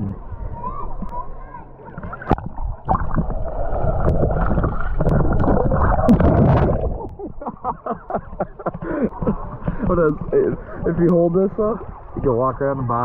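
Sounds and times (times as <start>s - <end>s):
water sloshing and splashing: 0.5s - 13.0s
muffled underwater gurgling: 1.9s - 7.4s.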